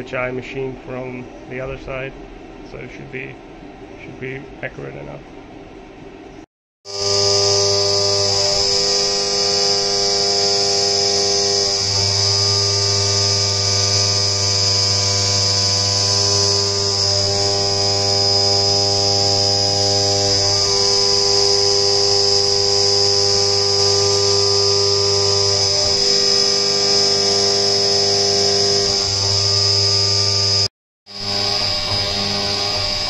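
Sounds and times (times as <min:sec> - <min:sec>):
mill spindle whine: 0:06.9 - 0:33.0.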